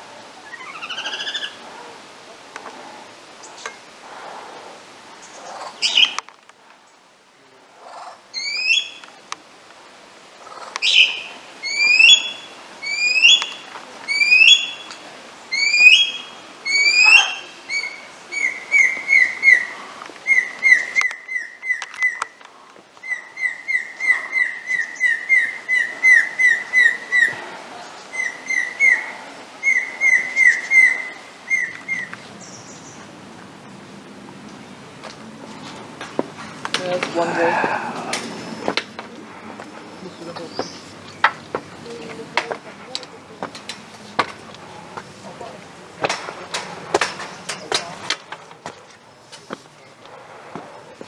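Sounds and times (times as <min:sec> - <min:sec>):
lyrebird singing: 0:00.4 - 0:01.9, 0:05.2 - 0:06.3, 0:07.9 - 0:09.2, 0:10.4 - 0:22.4, 0:23.0 - 0:33.8, 0:36.6 - 0:48.1.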